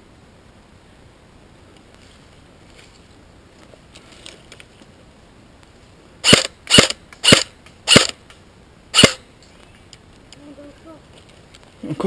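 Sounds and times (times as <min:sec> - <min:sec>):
airsoft rifle shots cracking: 0:06.2 - 0:08.2, 0:08.9 - 0:09.2.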